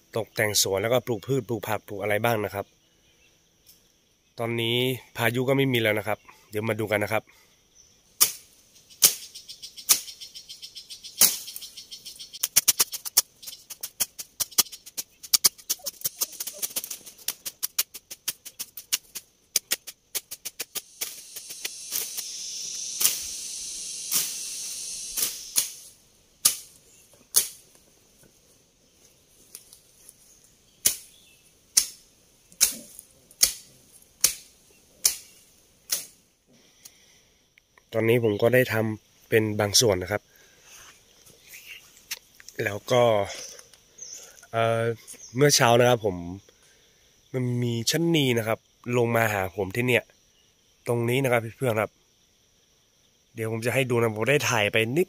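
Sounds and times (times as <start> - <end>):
hand tools knocking in soil: 12.4 - 22.3
hiss: 12.4 - 26.8.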